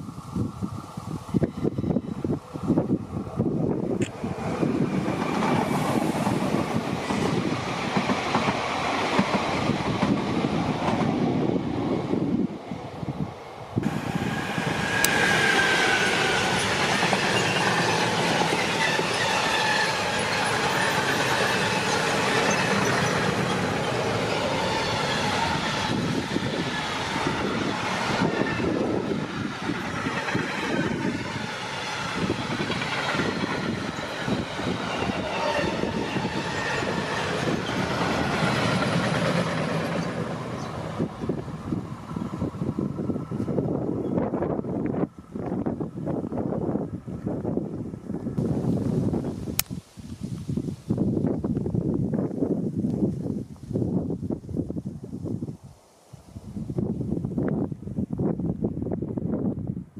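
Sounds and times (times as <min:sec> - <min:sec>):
train wagons rumbling over rails: 0:01.4 - 0:48.7.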